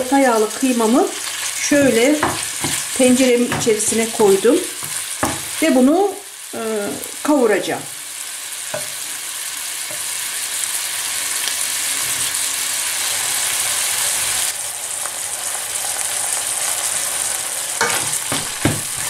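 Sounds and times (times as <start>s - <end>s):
meat sizzling in a frying pan: 0.0s - 19.0s
wooden spoon scraping a pan: 1.2s - 5.6s, 17.8s - 19.0s.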